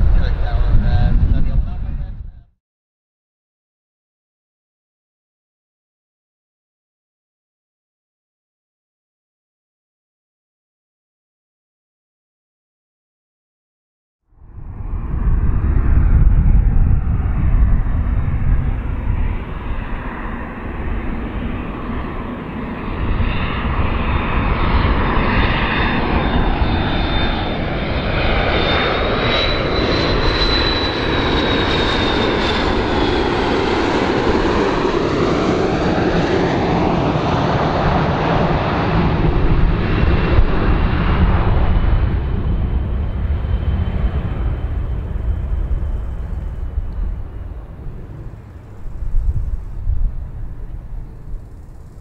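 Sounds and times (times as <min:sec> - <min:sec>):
high jet whine: 0:00.0 - 0:02.4, 0:14.4 - 0:52.0
jet airliner rumble: 0:00.0 - 0:02.6, 0:14.3 - 0:52.0.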